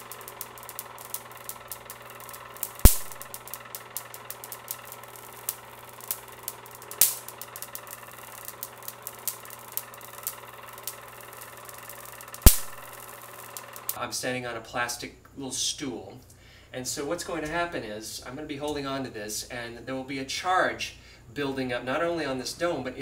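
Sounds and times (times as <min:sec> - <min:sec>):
loud spark cracks: 0:00.0 - 0:14.0
motor hum: 0:00.0 - 0:14.0
small crackling ticks: 0:00.0 - 0:14.0.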